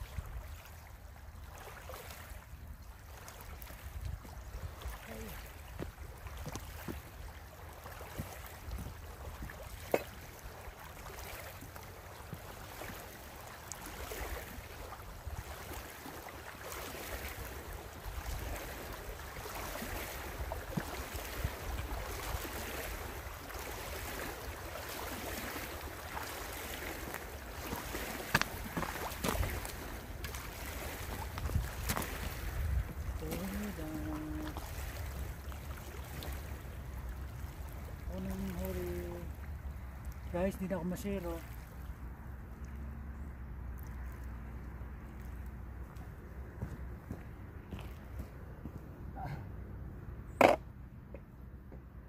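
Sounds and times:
small waves lapping on stony shore: 0:00.0 - 0:48.4
wind rumbling on microphone: 0:02.4 - 0:10.7, 0:17.1 - 0:40.0.

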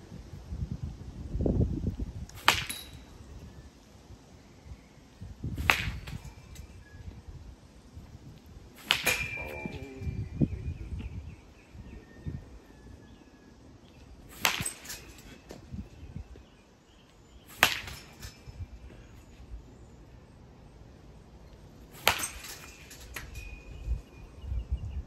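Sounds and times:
bat cracking against ball: 0:02.2 - 0:03.3, 0:05.5 - 0:06.8, 0:08.4 - 0:09.8, 0:14.2 - 0:15.7, 0:17.4 - 0:19.1, 0:21.8 - 0:23.5
metallic ringing: 0:08.9 - 0:10.1.

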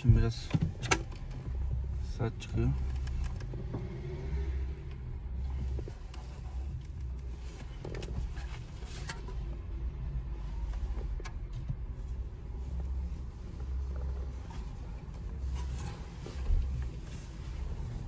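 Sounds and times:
low steady rumble: 0:00.0 - 0:18.0
sharp clicks and rustling: 0:02.7 - 0:03.8.

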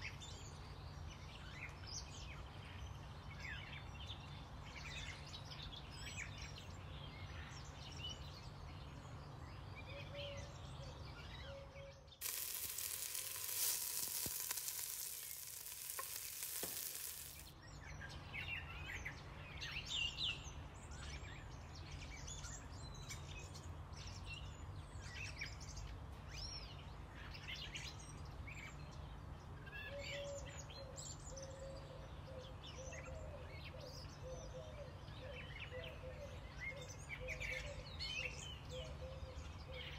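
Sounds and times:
vegetables sizzling in hot oil: 0:12.2 - 0:17.5.

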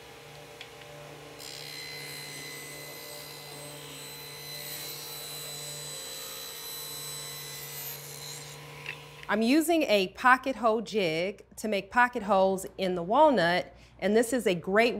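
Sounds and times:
saw motor hum: 0:00.0 - 0:09.3.

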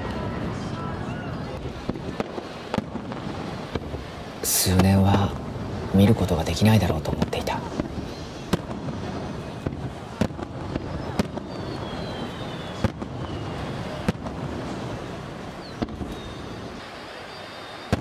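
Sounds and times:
firework shells bursting: 0:07.1 - 0:18.0
firework falling whistle: 0:07.9 - 0:18.0.

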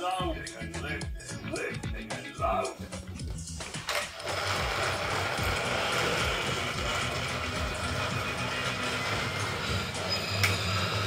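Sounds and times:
toy train motor whirring: 0:03.6 - 0:11.0.

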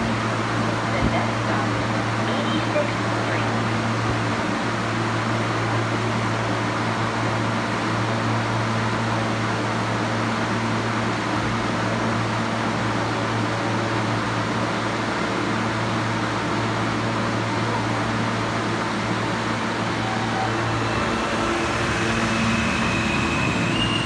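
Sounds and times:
train equipment humming: 0:15.0 - 0:24.0.

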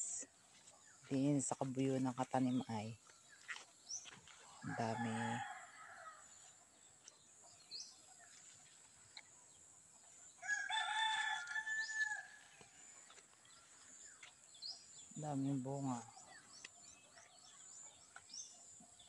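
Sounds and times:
rooster crowing: 0:04.6 - 0:06.3, 0:10.4 - 0:12.8
small bird chirping: 0:11.5 - 0:19.0.

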